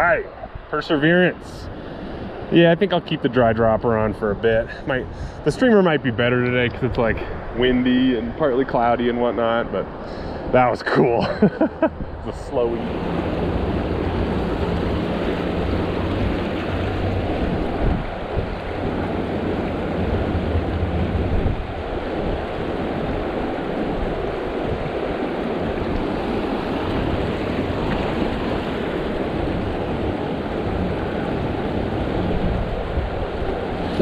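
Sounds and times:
wind rumbling on microphone: 3.4s - 10.7s, 11.4s - 34.0s
water rushing over rocks: 12.6s - 34.0s.

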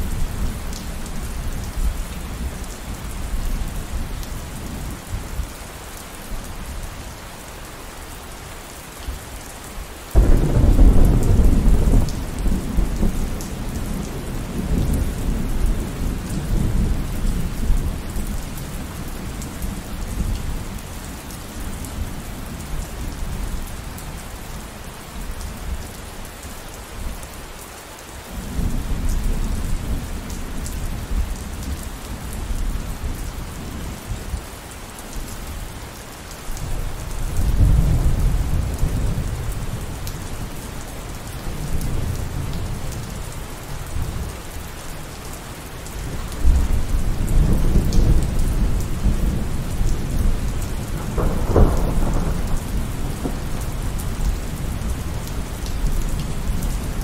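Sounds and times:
steady rainfall: 0.0s - 57.0s
thunder rumbling: 10.2s - 18.0s, 46.4s - 57.0s.

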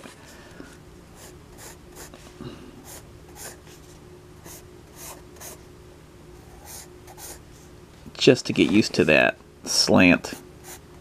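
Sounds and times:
pencil sketching on paper: 1.2s - 2.2s, 2.8s - 3.6s, 4.4s - 5.6s, 6.5s - 7.4s.

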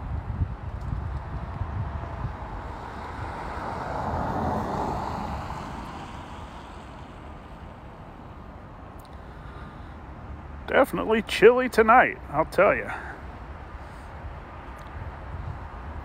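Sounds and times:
wind rumbling on microphone: 0.0s - 7.8s, 13.3s - 16.0s
vehicle passing by: 1.0s - 7.6s.

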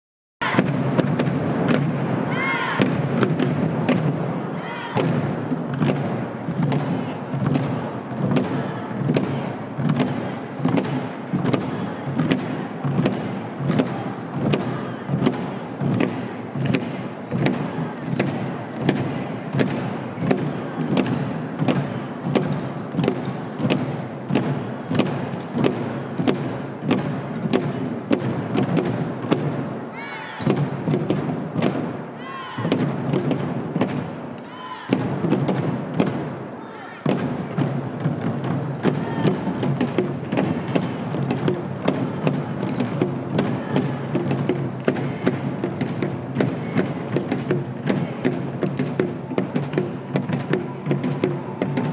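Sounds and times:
barrel drums beating: 0.4s - 51.9s.

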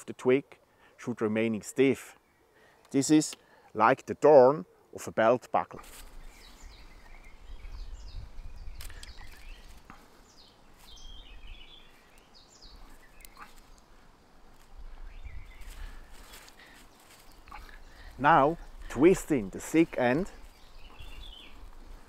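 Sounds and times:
small birds chirping: 0.0s - 22.0s
faint clicks: 13.1s - 13.9s.

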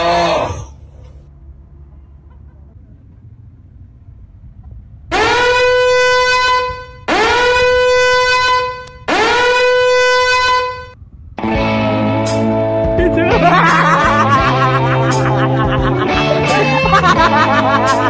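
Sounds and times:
loud buzzy horn blasts: 5.1s - 11.0s.

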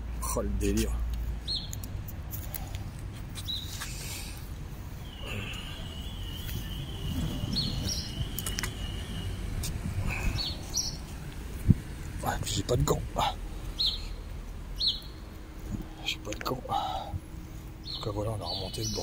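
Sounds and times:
low rumble: 4.2s - 17.9s
high whistle: 5.1s - 9.6s.

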